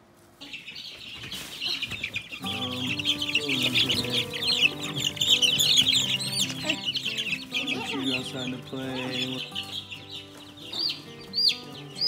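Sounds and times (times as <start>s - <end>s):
baby chicks peeping: 0.3s - 12.0s
background music: 2.4s - 12.0s.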